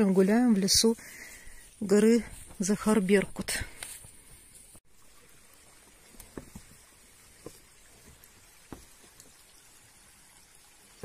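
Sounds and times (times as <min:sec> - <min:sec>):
footsteps on dirt path: 0:00.0 - 0:04.8, 0:06.2 - 0:09.2
stream trickling: 0:00.0 - 0:11.0.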